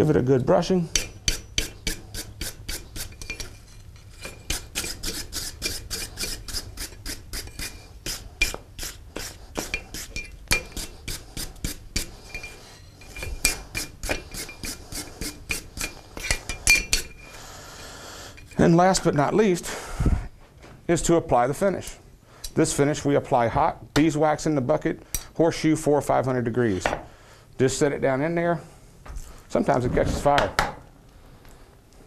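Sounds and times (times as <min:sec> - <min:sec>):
wire brush scrubbing metal: 0:00.9 - 0:17.3.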